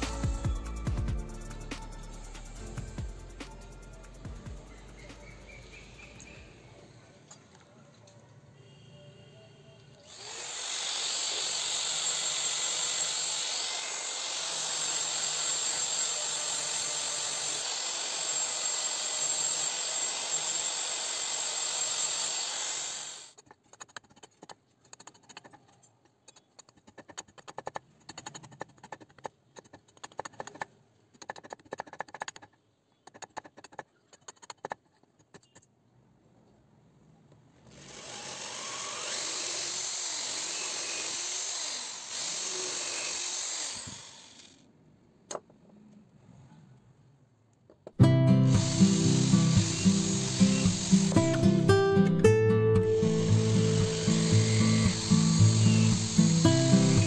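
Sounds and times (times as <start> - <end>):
electric drill boring into wood: 10.1 - 23.4, 37.6 - 44.6, 48.5 - 51.5, 53.1 - 57.0
knife scraping wood: 23.4 - 35.7
steady machine noise: 48.5 - 51.6, 52.9 - 57.0.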